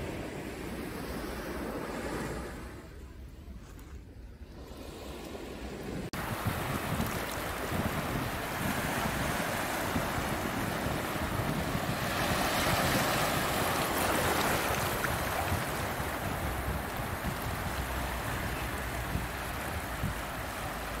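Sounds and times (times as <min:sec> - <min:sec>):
wind rumble on microphone: 0:00.0 - 0:21.0
surf washing over rocks: 0:06.0 - 0:21.0.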